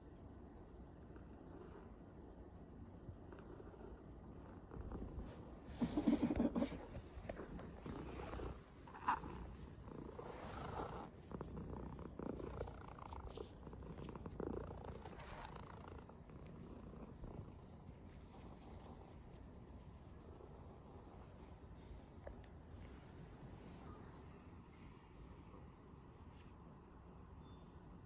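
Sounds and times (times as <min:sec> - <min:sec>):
cat purring: 0:03.1 - 0:21.8.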